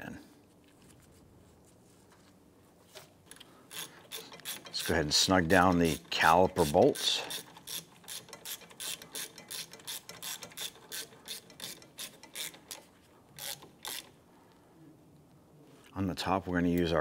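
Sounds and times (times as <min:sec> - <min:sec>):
hand ratchet clicking: 0:03.3 - 0:14.2.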